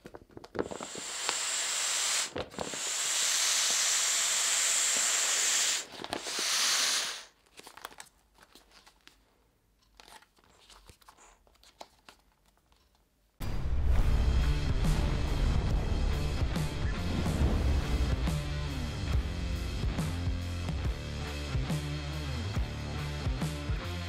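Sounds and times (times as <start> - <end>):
plastic crinkling: 0.0 - 0.9, 5.9 - 6.4, 7.3 - 13.0
air hissing out of valve: 0.6 - 7.3.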